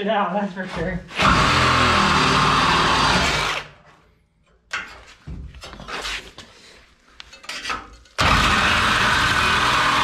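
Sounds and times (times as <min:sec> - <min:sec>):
reciprocating saw cutting steel: 0:08.2 - 0:10.0.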